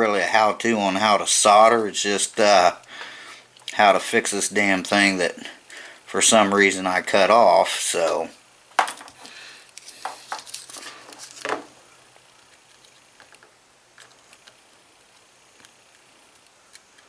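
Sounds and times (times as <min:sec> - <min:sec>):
handling clicks and rustling: 0:08.0 - 0:17.0.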